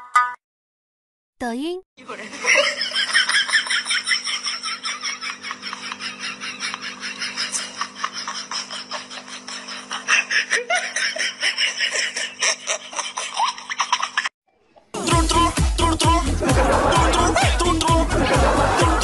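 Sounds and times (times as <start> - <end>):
person laughing: 2.1 - 14.3, 16.0 - 19.0.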